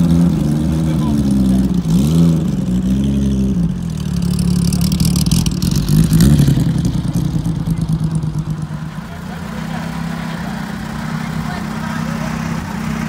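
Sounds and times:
racing car engine at low revs: 0:00.0 - 0:13.0.

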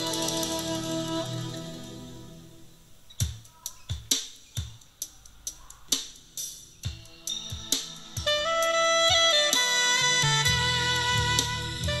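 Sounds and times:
held instrument notes: 0:00.0 - 0:02.6, 0:07.2 - 0:12.0.

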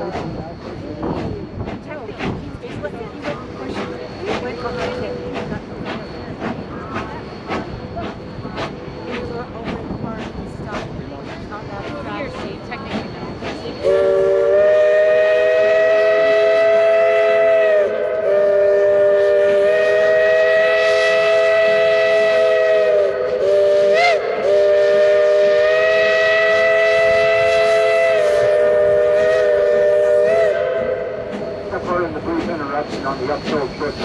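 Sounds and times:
steam locomotive chime whistle: 0:12.3 - 0:32.0.

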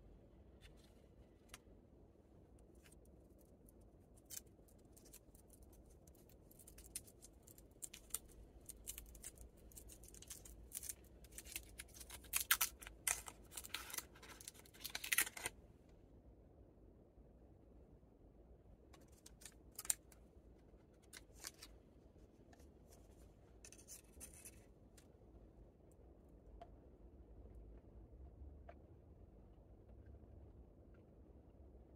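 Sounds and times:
foil candy wrapper crinkling: 0:04.1 - 0:15.5.

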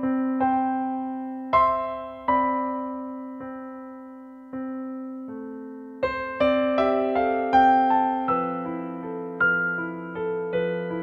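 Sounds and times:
slow piano notes: 0:00.0 - 0:11.0.

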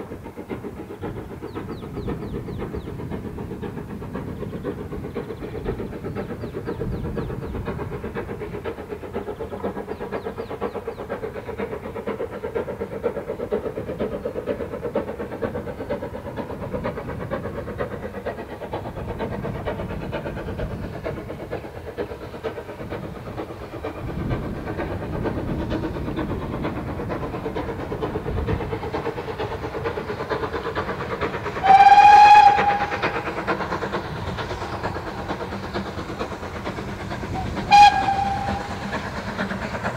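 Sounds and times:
steam locomotive chuffing: 0:00.0 - 0:39.9
steam whistle blast: 0:31.6 - 0:32.9, 0:37.6 - 0:38.6.

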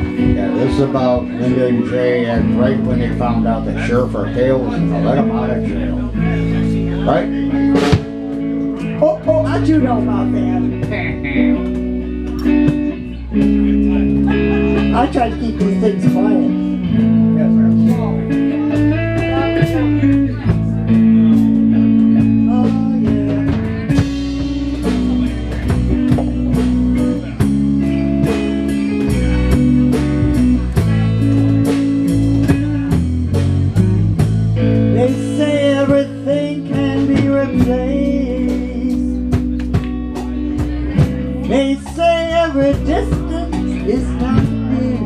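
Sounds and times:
live band playing: 0:00.0 - 0:45.0
drum hits: 0:07.6 - 0:08.6, 0:17.8 - 0:34.6.

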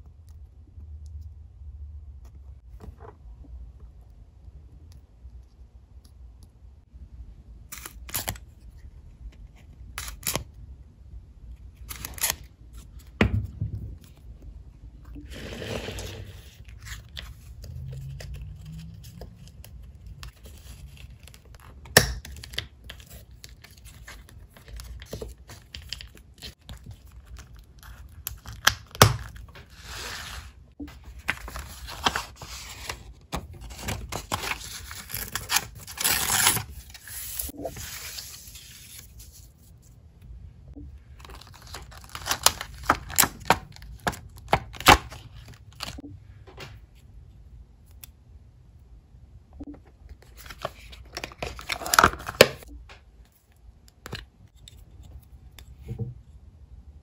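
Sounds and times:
paper tearing and crinkling: 0:33.6 - 0:39.4, 0:41.3 - 0:46.0.

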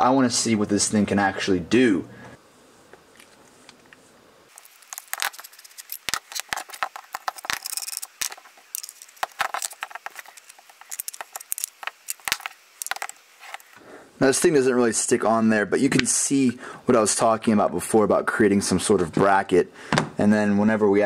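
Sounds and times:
parts clicking and rattling: 0:04.5 - 0:13.8.

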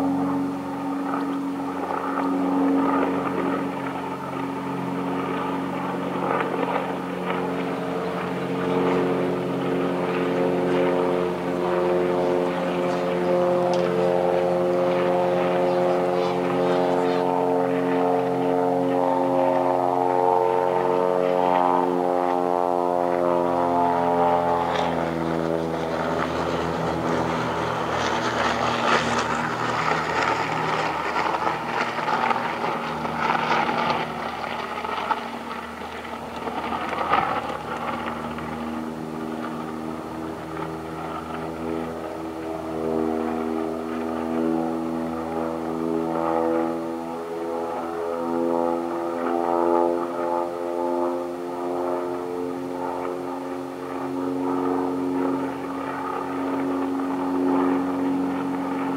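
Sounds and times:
steady engine-like drone: 0:00.0 - 0:58.9.

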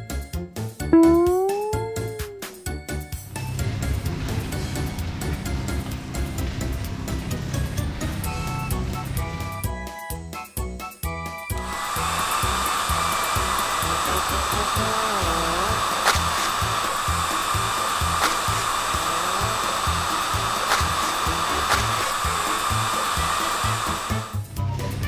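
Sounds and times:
background music with beat: 0:00.0 - 0:02.8
cartoon whirring hum: 0:01.0 - 0:02.8, 0:11.6 - 0:24.4.

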